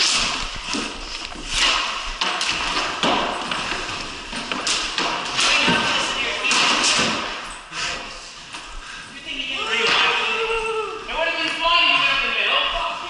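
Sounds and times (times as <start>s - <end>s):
hockey sticks clacking: 0.0s - 7.6s.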